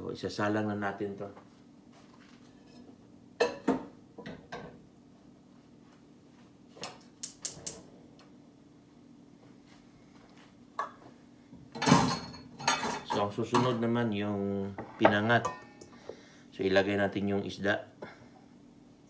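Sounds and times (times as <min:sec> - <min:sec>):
faint steady hum: 0:00.0 - 0:19.0
cookware clatter: 0:11.8 - 0:13.8, 0:14.8 - 0:15.9.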